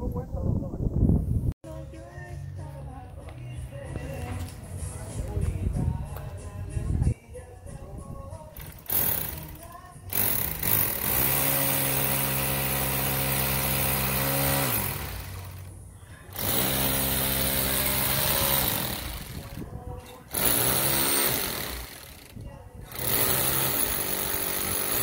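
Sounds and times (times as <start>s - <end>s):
power tool motor running: 8.6s - 15.7s, 16.3s - 25.0s.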